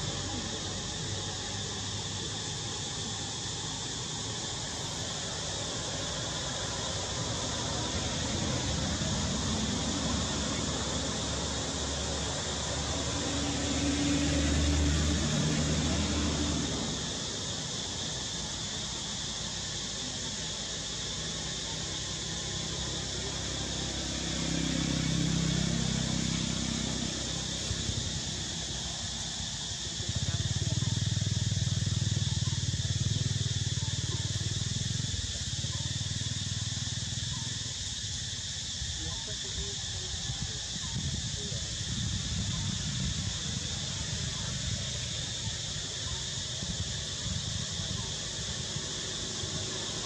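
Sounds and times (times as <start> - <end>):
passing vehicle engine hum: 0.0 - 38.3
high insect drone: 0.0 - 50.0.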